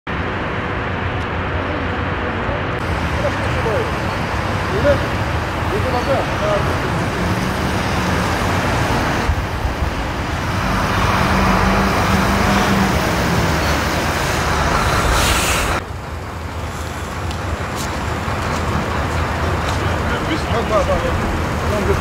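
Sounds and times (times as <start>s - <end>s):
bus engine driving past: 0.1s - 22.0s
vehicle noise: 0.1s - 22.0s.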